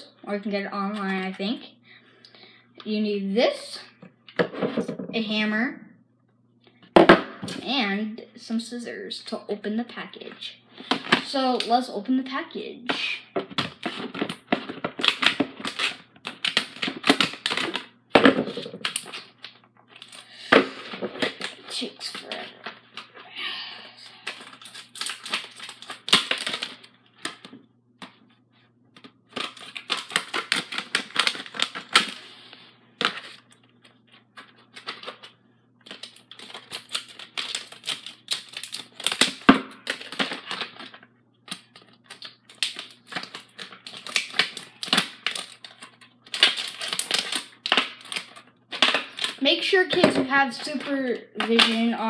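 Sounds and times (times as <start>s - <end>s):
scissors cutting plastic packaging: 13.5s - 17.9s, 18.8s - 20.3s, 24.1s - 27.4s, 29.3s - 32.3s, 34.6s - 52.0s.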